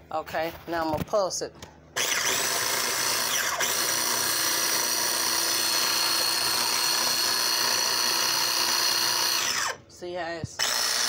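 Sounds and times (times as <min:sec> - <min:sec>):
food chopper motor running: 0:02.0 - 0:09.9, 0:10.6 - 0:11.0.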